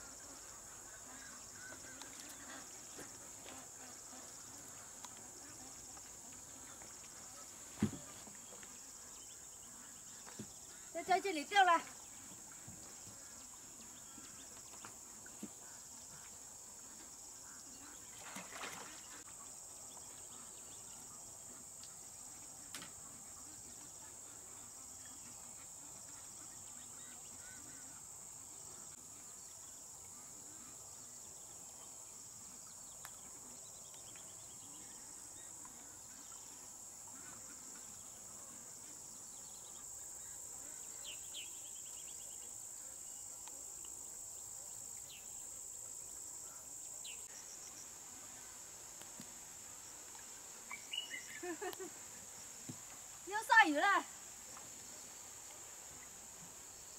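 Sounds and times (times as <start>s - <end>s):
high-pitched insect chorus: 23.2s - 56.9s.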